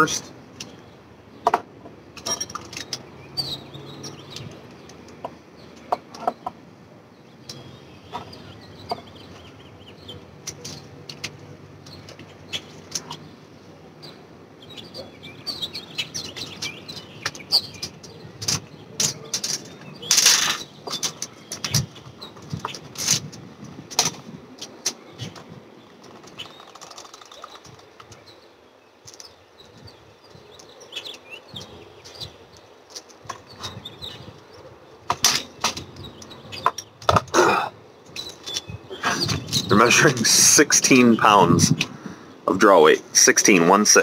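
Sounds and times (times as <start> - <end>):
small birds chirping: 0.0 - 44.0
gear clicking and rustling: 16.2 - 28.4.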